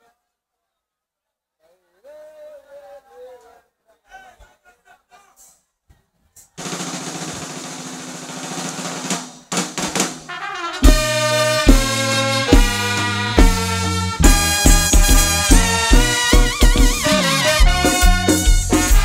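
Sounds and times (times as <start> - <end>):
live band playing: 6.6 - 19.0
sharp drum hits: 6.6 - 19.0
snare drum roll: 6.6 - 19.0.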